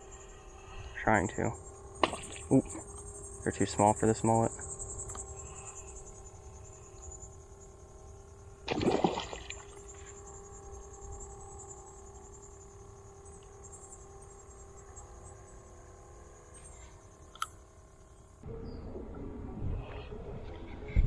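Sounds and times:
high insect buzz: 0.0 - 18.8
fish splash at water surface: 8.7 - 9.7.

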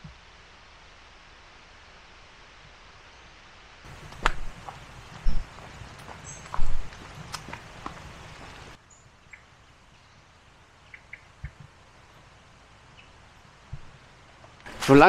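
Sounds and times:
footsteps on leaves: 3.9 - 8.8
faint bird chirps: 8.3 - 11.5.

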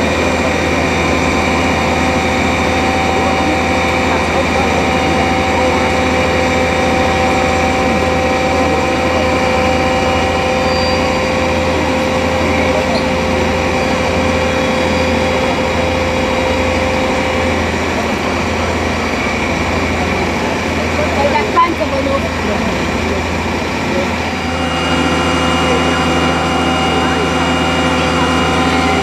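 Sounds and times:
diesel engine droning: 0.0 - 29.0
hydraulic whine: 0.0 - 29.0.

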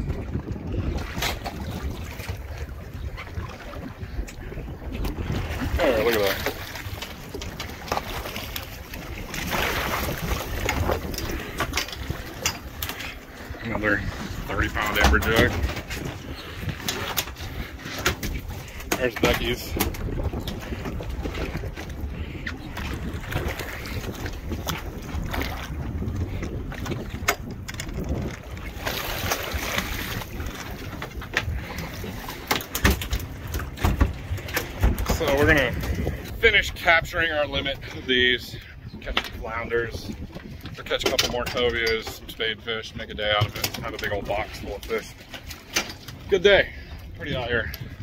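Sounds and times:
water splashing: 0.0 - 36.7
wind rumble on microphone: 0.0 - 48.0
knocks on boat: 32.4 - 36.0.

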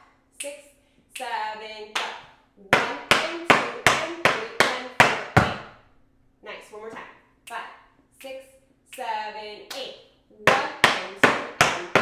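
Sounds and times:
tap shoes on wooden floor: 10.5 - 12.0.

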